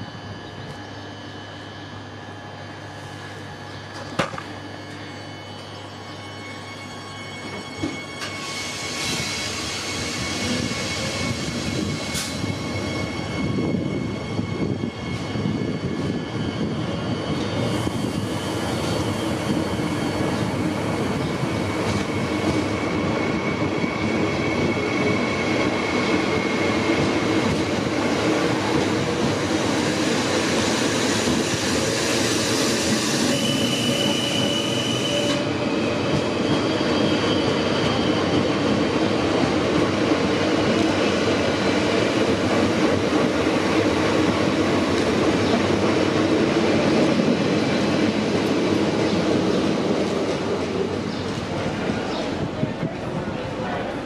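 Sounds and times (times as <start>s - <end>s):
high wheel squeals: 4.6s - 27.0s, 29.0s - 38.8s.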